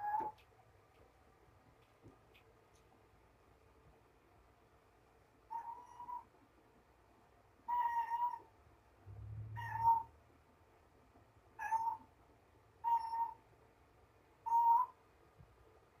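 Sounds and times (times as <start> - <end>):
cat meowing: 7.7 - 8.5, 9.5 - 10.1, 11.6 - 12.0, 12.8 - 13.4.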